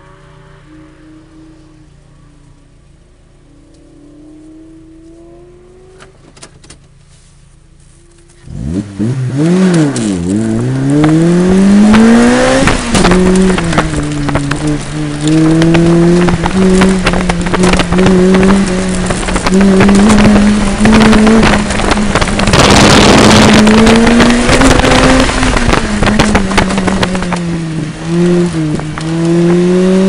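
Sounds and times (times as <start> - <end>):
car engine idling and revving: 0.0 - 30.0.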